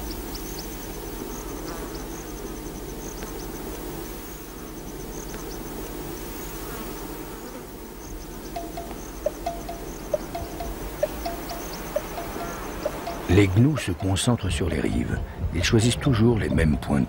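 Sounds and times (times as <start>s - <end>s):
insect buzzing: 0.0s - 14.3s
high rapid chirping: 8.4s - 16.7s.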